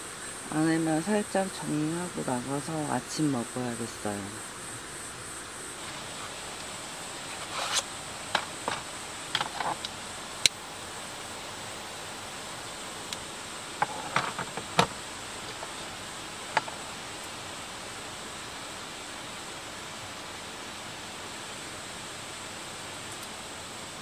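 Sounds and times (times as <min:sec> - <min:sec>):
steady hiss: 0:00.0 - 0:24.0
belongings clicking and rustling: 0:07.3 - 0:10.0, 0:13.8 - 0:15.9.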